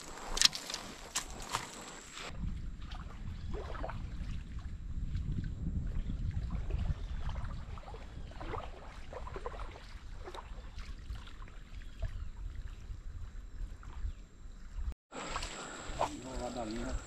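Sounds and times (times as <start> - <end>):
water sloshing: 0.0 - 5.2, 6.4 - 12.9, 15.2 - 17.0
wind rumbling on microphone: 0.0 - 17.0.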